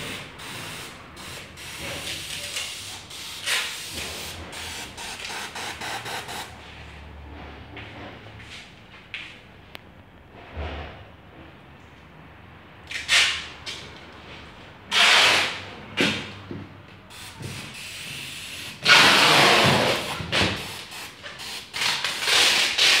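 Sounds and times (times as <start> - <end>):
compressed-air tool hissing: 0.0 - 6.5.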